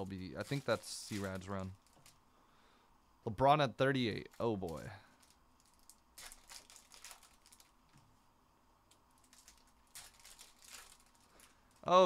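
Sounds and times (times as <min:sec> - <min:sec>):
foil card pack crinkling: 0:00.0 - 0:02.2, 0:04.1 - 0:07.8, 0:09.2 - 0:12.0.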